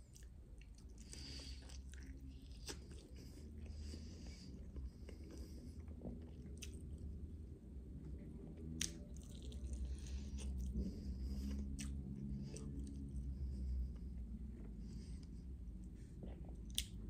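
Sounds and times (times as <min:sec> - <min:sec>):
wet chewing with crunches: 0:00.0 - 0:07.1, 0:08.6 - 0:13.3, 0:16.2 - 0:17.0
low steady hum: 0:00.0 - 0:17.0.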